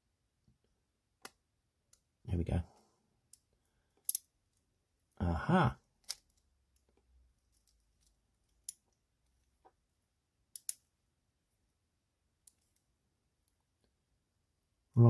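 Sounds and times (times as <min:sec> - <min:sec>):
plastic and metal parts clicking: 0:06.0 - 0:09.0, 0:10.6 - 0:10.8.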